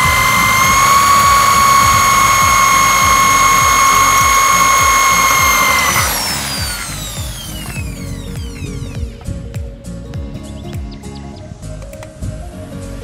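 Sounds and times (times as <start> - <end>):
cordless drill whining: 0.0 - 9.3.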